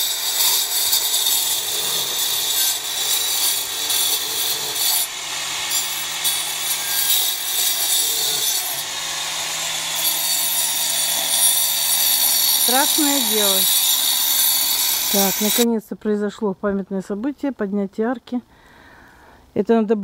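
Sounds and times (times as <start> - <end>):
angle grinder cutting masonry: 0.0 - 15.7.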